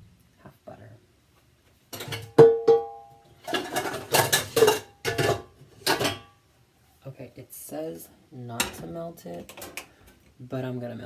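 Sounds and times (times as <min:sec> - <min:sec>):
utensils and dishes clattering: 0:01.9 - 0:06.4.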